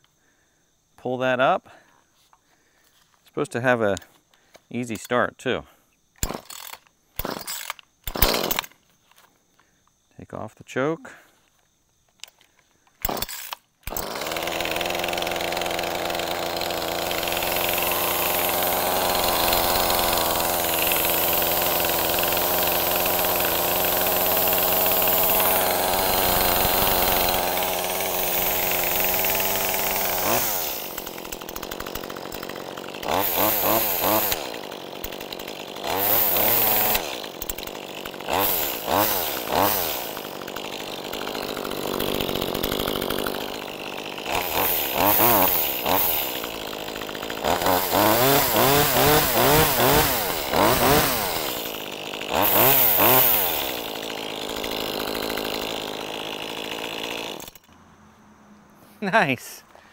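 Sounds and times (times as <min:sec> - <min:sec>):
chainsaw engine idling and revving: 0:06.2 - 0:08.8, 0:13.0 - 0:57.8.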